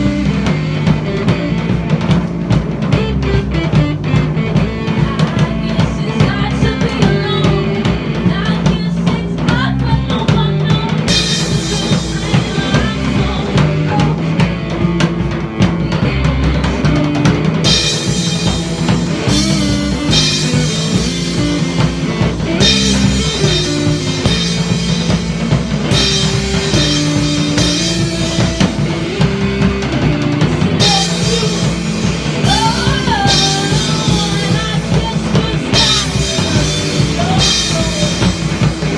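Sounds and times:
live rock band playing: 0.0s - 38.9s
person singing: 4.0s - 17.2s, 26.7s - 38.9s.

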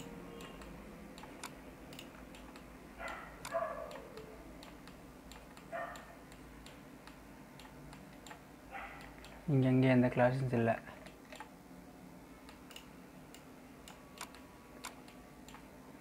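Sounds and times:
computer mouse clicking: 0.0s - 8.4s, 11.0s - 11.5s, 12.4s - 15.7s.

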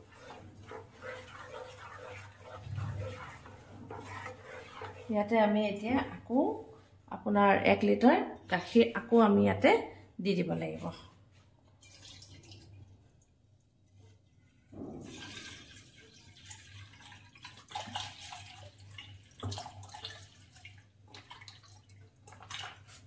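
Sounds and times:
milk pouring into pan: 11.8s - 12.9s, 15.0s - 23.0s.

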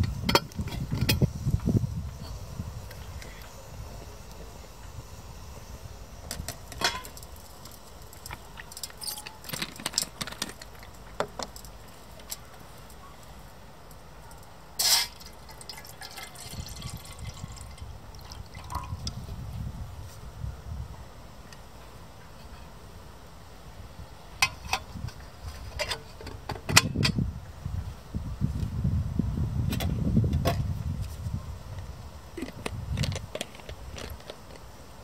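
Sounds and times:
metal kettle clinking: 6.8s - 7.2s
water pouring into kettle: 15.1s - 19.1s.

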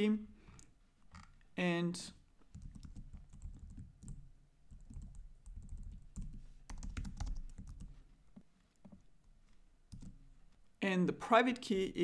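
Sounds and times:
computer keyboard typing: 2.5s - 8.0s, 9.9s - 10.2s.

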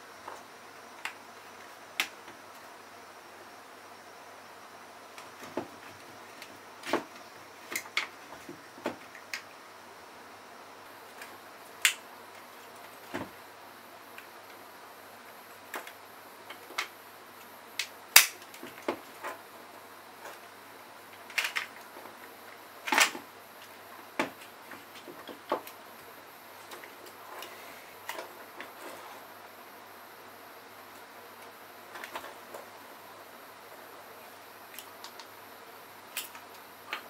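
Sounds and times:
plastic clips clicking: 17.8s - 18.6s.

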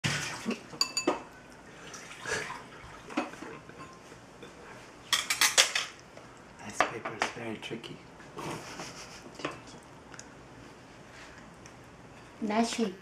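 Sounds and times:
chopsticks clinking on a bowl: 0.8s - 1.3s
small splashes: 1.4s - 3.1s
chopsticks stirring in a bowl: 3.0s - 5.9s.

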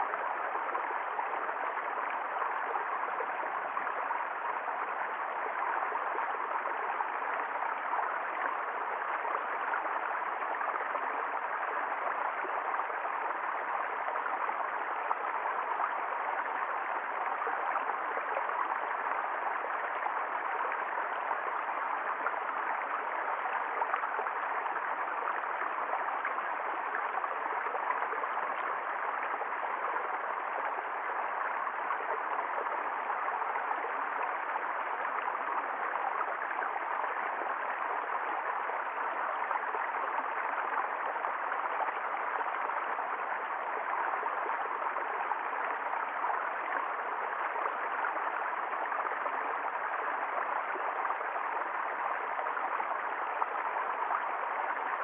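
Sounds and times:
brook running over stones: 0.0s - 55.0s.

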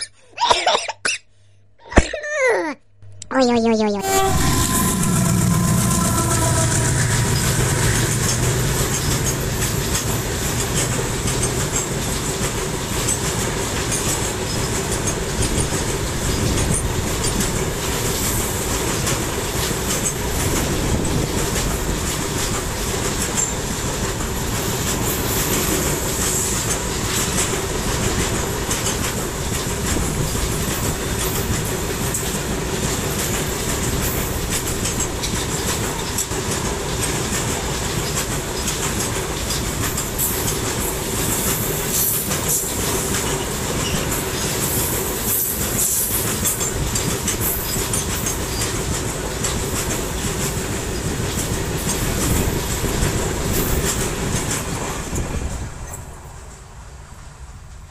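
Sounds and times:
diesel locomotive drone: 4.0s - 13.9s
train wheels rumbling on rails: 4.2s - 57.9s.

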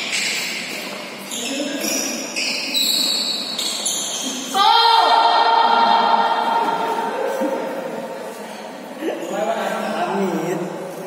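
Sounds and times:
court shoes squeaking: 0.0s - 4.6s.

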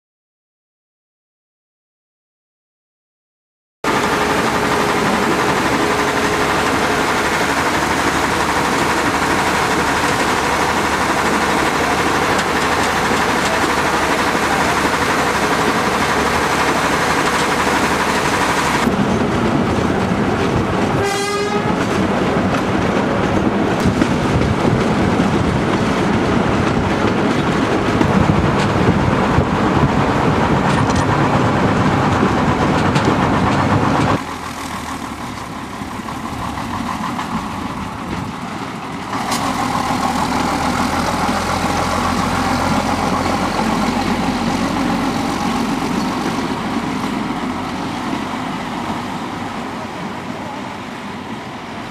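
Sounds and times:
railcar engine and wheel noise: 3.8s - 51.9s
railcar horn blast: 21.0s - 21.9s.

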